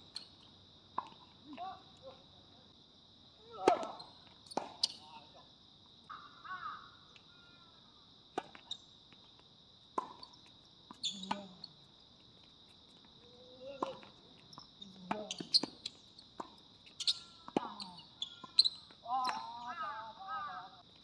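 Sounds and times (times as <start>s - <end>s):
high-pitched insect chorus: 0.0s - 21.0s
tennis ball bounces: 10.0s - 11.5s, 13.8s - 19.6s.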